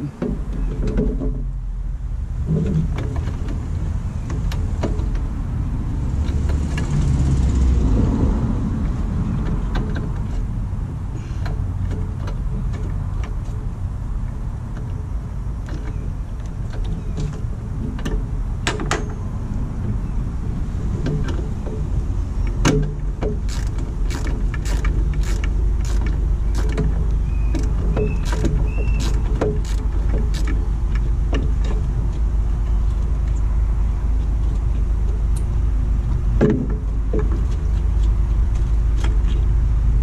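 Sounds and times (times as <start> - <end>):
steady low rumble: 0.0 - 40.0
clicks and knocks of parts: 21.0 - 32.3.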